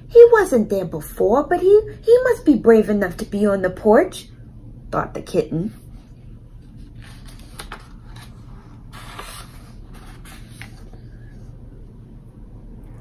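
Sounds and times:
low steady hum: 0:00.0 - 0:13.0
paper page rustling: 0:06.6 - 0:11.1
page swishing: 0:06.7 - 0:11.1.

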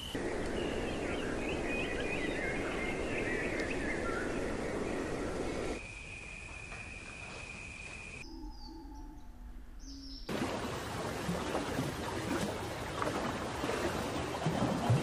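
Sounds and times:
faint bird chirps: 0:00.0 - 0:10.3
rushing water with splashes: 0:10.3 - 0:15.0.

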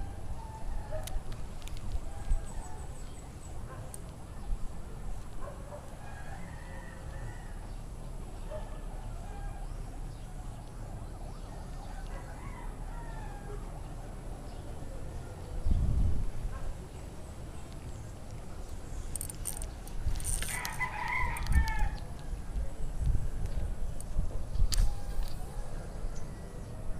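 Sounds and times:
rooster crowing: 0:06.0 - 0:07.7, 0:11.8 - 0:13.6, 0:20.2 - 0:22.1.

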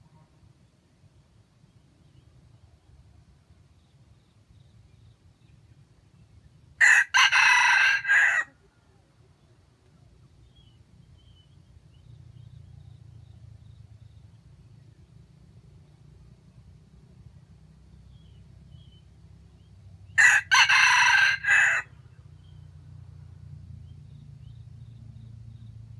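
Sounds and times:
rooster crowing: 0:06.8 - 0:08.6, 0:20.2 - 0:22.0.

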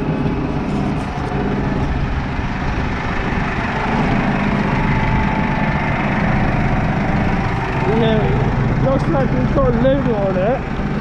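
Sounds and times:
tractor diesel engine idling: 0:00.0 - 0:11.0.

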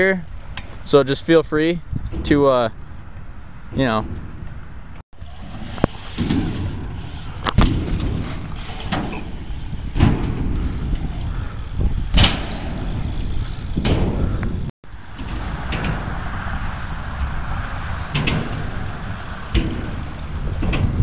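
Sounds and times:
wind on microphone: 0:01.8 - 0:02.4, 0:05.2 - 0:21.0
tyres rolling on ramps: 0:01.9 - 0:21.0
bike landing knocks: 0:05.4 - 0:21.0.

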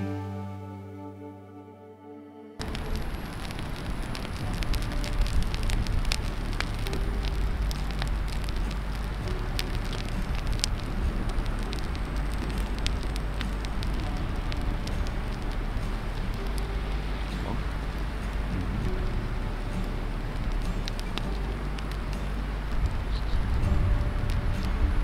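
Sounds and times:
low rumble: 0:00.0 - 0:25.0
campfire crackling and popping: 0:02.6 - 0:25.0.

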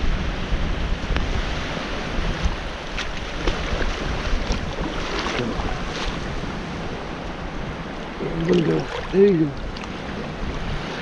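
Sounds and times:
small waves washing on shore: 0:00.0 - 0:11.0
wind buffeting microphone: 0:00.0 - 0:11.0
short water splashes: 0:02.3 - 0:06.5, 0:08.2 - 0:11.0.

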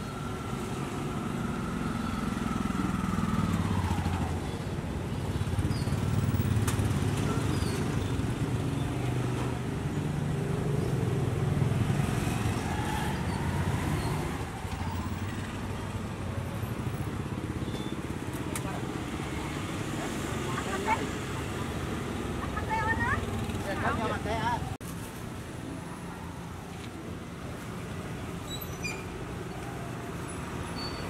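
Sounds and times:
motorbike engines passing: 0:00.0 - 0:24.8.

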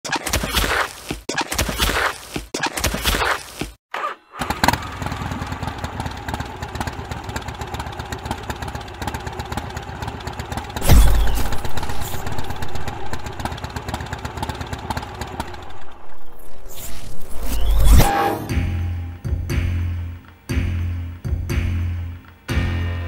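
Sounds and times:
motorcycle engine idling: 0:04.4 - 0:10.8, 0:12.4 - 0:16.0.

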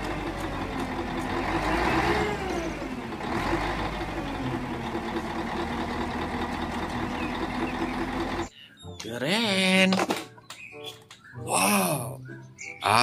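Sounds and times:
diesel truck engine running: 0:00.0 - 0:08.5.

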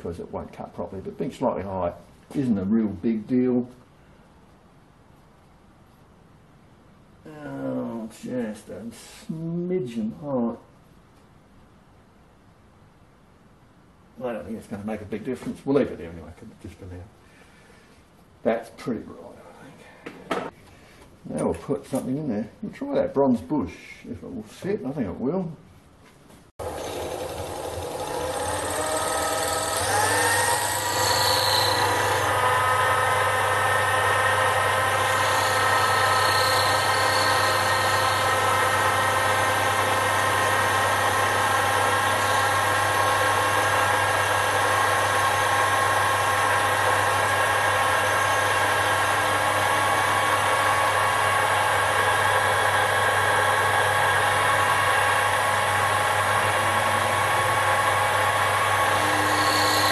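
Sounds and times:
boring bar cutting metal: 0:26.6 - 0:59.9
lathe motor whining: 0:26.6 - 0:59.9.

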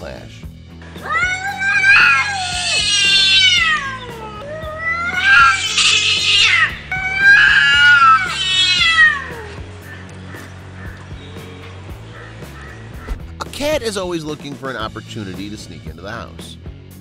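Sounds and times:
cats yowling: 0:01.0 - 0:11.0.

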